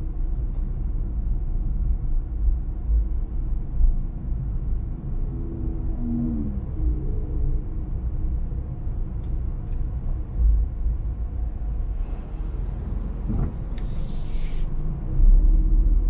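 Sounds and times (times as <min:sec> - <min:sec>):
car engine and tyre rumble: 0:00.0 - 0:16.0
short hiss: 0:13.8 - 0:14.7.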